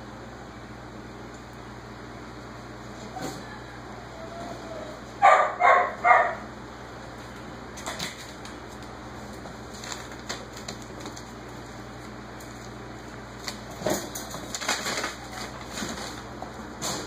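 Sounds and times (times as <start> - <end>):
dog barking: 5.2 - 6.5.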